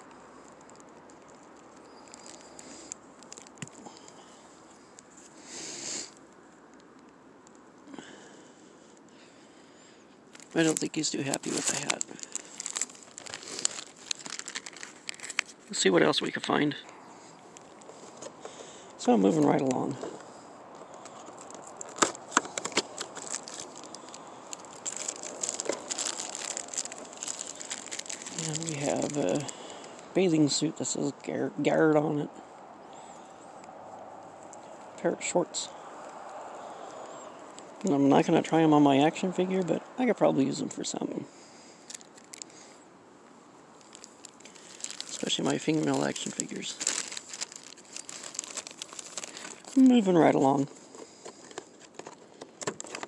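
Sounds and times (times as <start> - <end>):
plastic clicks and crinkles: 0.0 - 5.4, 10.1 - 15.8, 16.8 - 30.1, 41.8 - 53.0
plastic bag rustle: 0.0 - 6.2, 10.2 - 16.4, 17.1 - 30.2, 41.5 - 42.8, 43.7 - 53.0.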